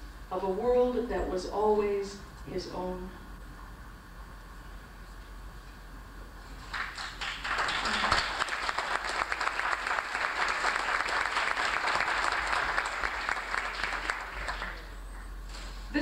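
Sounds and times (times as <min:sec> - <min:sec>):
audience applauding: 0:06.6 - 0:15.4.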